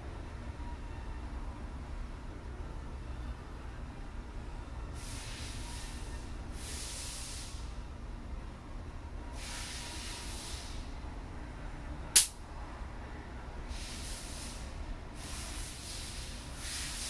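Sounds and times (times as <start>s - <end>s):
short bursts of hissing: 5.0s - 6.0s, 6.6s - 7.7s, 9.4s - 10.8s, 13.7s - 17.0s.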